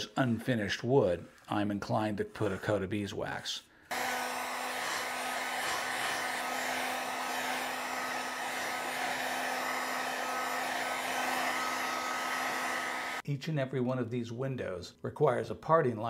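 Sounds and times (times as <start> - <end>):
heat gun blowing hiss: 3.9 - 13.2.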